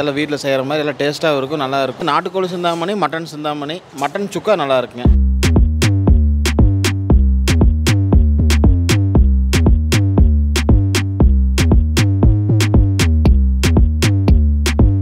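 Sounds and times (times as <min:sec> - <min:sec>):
deep synth bass line: 0:05.1 - 0:15.0
drum machine beat: 0:05.1 - 0:15.0.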